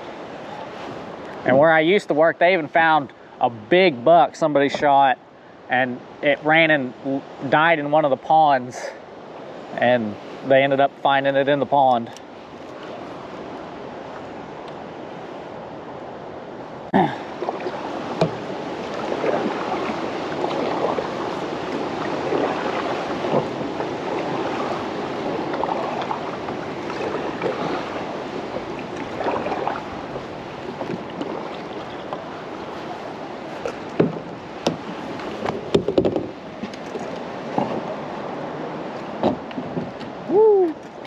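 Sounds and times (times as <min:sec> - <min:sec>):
water splashing against kayak hull: 0:11.7 - 0:41.0
sharp knocks: 0:18.2 - 0:18.4, 0:34.0 - 0:34.8, 0:35.4 - 0:36.3.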